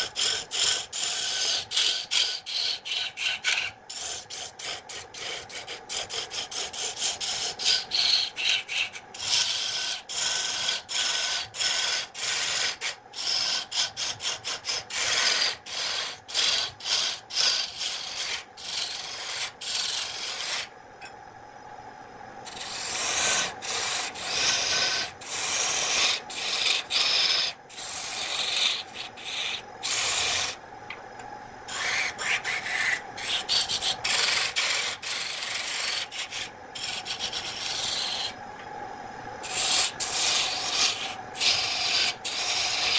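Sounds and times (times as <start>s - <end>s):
gouge scraping spinning wood: 0.0s - 20.7s, 22.4s - 30.6s, 31.7s - 38.4s, 39.4s - 42.9s
lathe motor humming: 22.4s - 38.7s, 39.5s - 42.9s.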